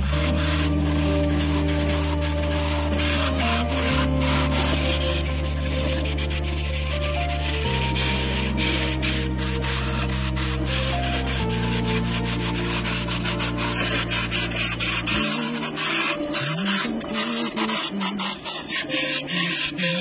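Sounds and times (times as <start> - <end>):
background music with low notes: 0.0 - 20.0
chisel scraping wood on lathe: 0.0 - 20.0.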